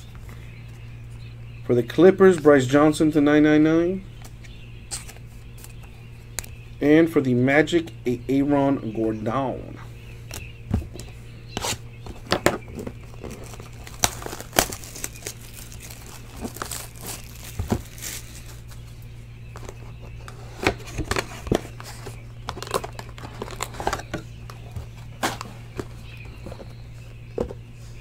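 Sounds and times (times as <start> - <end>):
steady low hum: 0.0 - 28.0
wrapping crinkling and tearing: 13.1 - 18.8.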